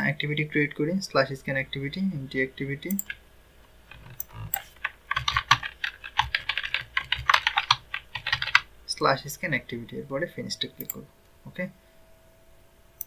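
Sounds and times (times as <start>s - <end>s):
typing on keyboard: 3.9s - 8.7s.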